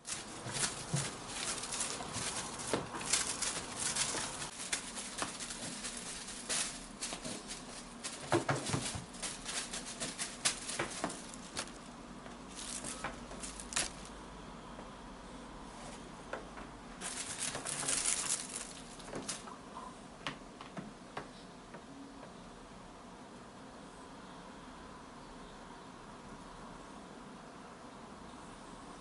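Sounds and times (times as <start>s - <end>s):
feather toy rustling: 0.0s - 14.2s, 17.0s - 19.6s.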